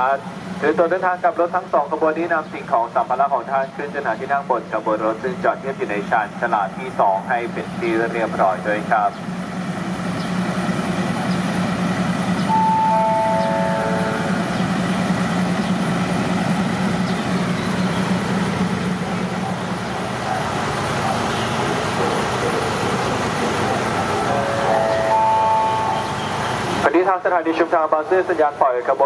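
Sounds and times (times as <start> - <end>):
diesel train engine idling: 0.0 - 29.0
descending chime: 12.5 - 14.7, 24.4 - 26.4.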